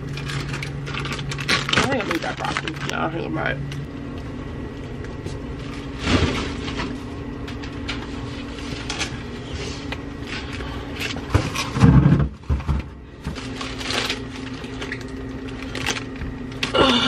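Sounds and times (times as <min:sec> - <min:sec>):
plastic bags crinkling: 0:00.0 - 0:03.5, 0:13.1 - 0:17.0
refrigerator hum: 0:00.0 - 0:17.0.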